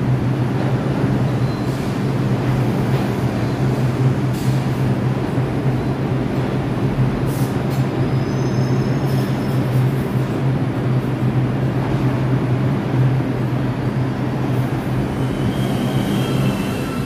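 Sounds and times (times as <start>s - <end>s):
subway train rumbling: 0.0s - 17.0s
train wheel squeal: 1.2s - 2.2s, 3.2s - 4.6s, 8.0s - 9.8s, 14.8s - 17.0s.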